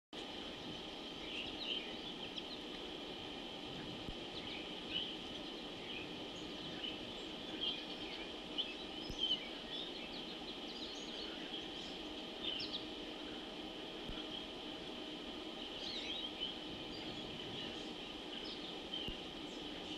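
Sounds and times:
bird chirps and calls: 4.3s - 13.0s, 15.6s - 19.9s.

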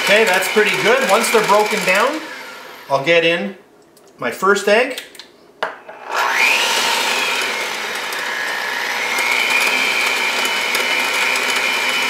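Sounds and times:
electric hand mixer motor whine: 0.0s - 3.0s, 5.8s - 12.0s.

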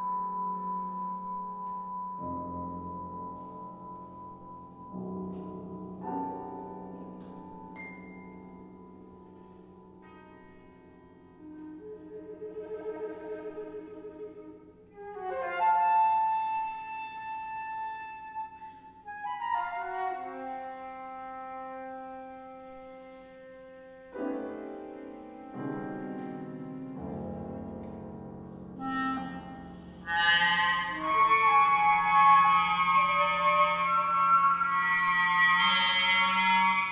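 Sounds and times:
soft piano and harp: 0.0s - 30.4s
chamber music ensemble: 0.0s - 36.9s
held flute and clarinet notes: 11.3s - 27.2s, 28.8s - 36.9s.

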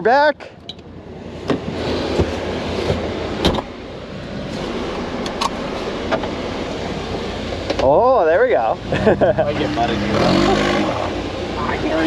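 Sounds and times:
utility vehicle engine running: 0.8s - 12.0s.

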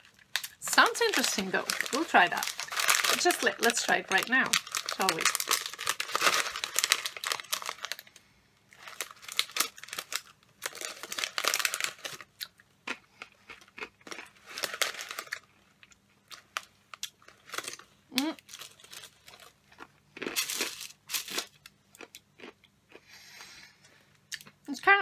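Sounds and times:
snack packet crinkling: 0.0s - 22.6s
crunchy snack chewing: 4.5s - 8.1s, 8.8s - 23.1s.

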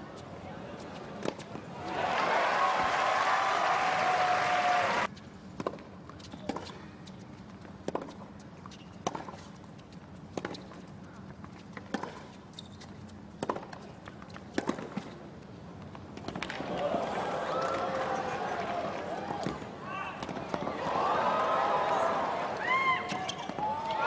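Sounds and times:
faint crowd noise: 0.0s - 5.2s, 16.2s - 24.0s.

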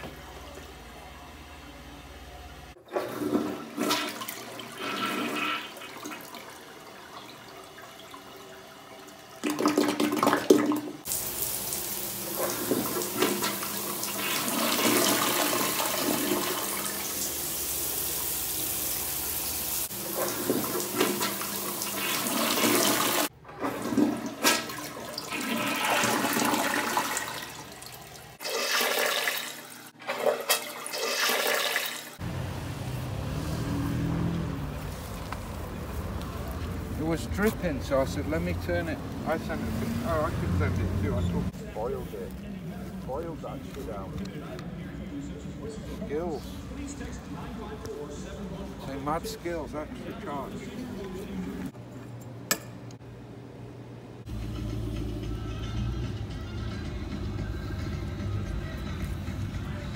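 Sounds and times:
toilet flushing: 2.7s - 32.2s
plunger sloshing water in toilet: 2.8s - 11.2s, 12.1s - 17.1s, 19.9s - 32.2s.

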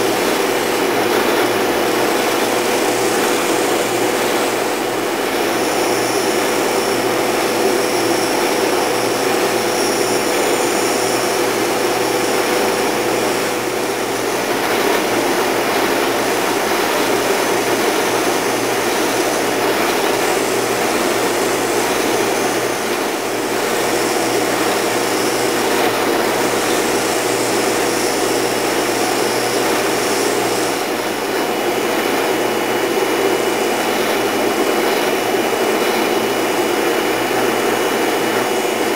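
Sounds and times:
wood sanding on drum: 0.0s - 31.1s
spindle sander motor hum: 0.0s - 38.9s.

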